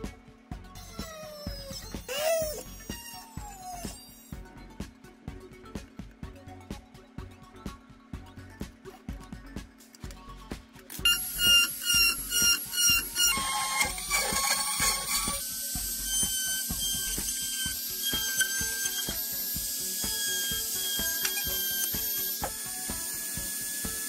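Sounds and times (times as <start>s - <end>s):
rotary tool cutting plastic: 0.9s - 4.3s, 10.9s - 24.0s.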